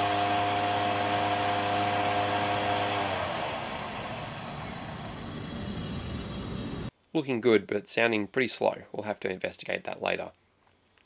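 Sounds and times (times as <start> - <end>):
spinning weapon whine: 0.0 - 6.9.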